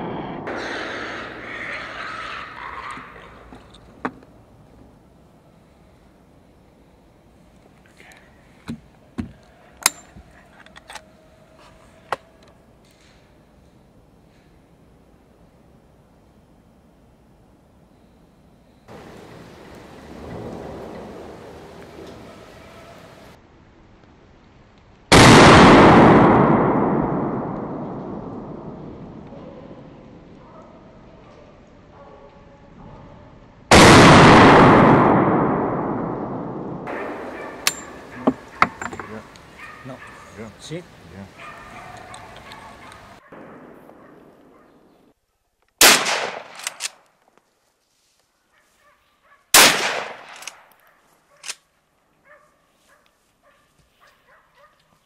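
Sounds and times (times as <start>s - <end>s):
gunshot echoing: 25.1s - 28.8s, 33.7s - 39.2s, 43.3s - 44.8s, 45.8s - 46.9s, 49.6s - 50.6s
sharp clicks and knocks: 37.6s - 39.2s.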